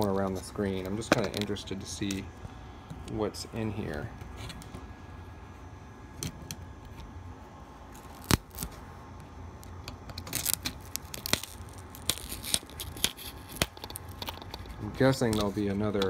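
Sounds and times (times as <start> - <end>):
plastic clicks and crackles: 9.8 - 16.0.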